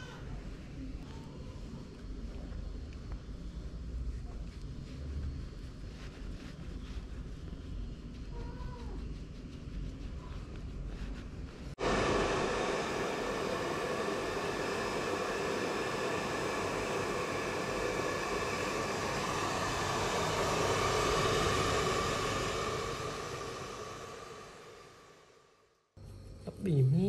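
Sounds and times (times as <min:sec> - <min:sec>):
hair dryer blowing: 0:11.7 - 0:25.3.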